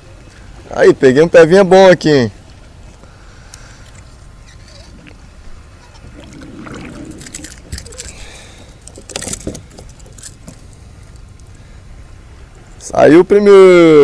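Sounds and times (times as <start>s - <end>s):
steady low rumble: 2.3s - 12.9s
fishing tackle clicking and rattling: 7.1s - 11.5s.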